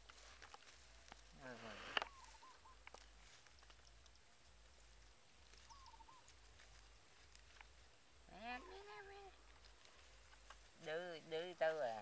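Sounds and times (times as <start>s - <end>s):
faint ticks: 0.0s - 4.5s.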